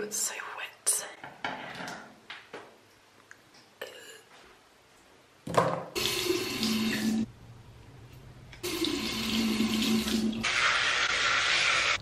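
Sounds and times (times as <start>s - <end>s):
steady low hum: 7.2s - 8.6s.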